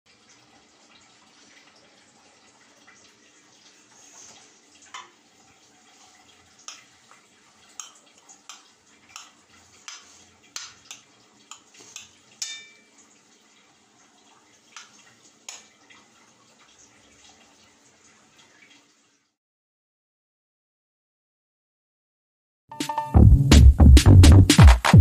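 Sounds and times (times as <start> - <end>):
metal spoon clinking on a plate: 10.6 - 12.9.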